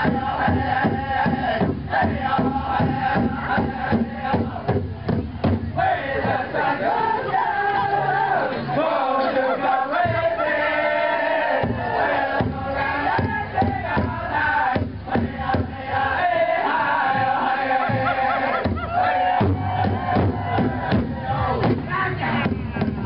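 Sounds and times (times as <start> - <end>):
beaten drum: 0.0 - 6.6, 10.0 - 10.4, 11.4 - 23.0
many voices chanting: 0.0 - 23.0
crowd whooping and crying: 17.4 - 22.3.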